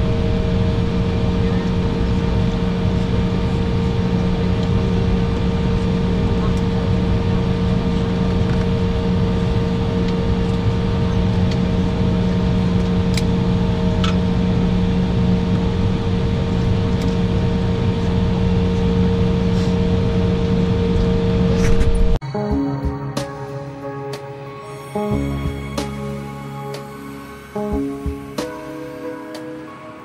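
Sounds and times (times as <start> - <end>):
airliner cabin drone: 0.0 - 30.0
steady mid-pitched tone: 22.2 - 30.0.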